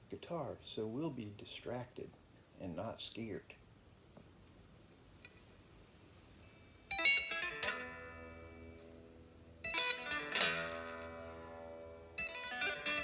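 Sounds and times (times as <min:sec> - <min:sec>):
electric guitar strumming: 0:06.9 - 0:13.0.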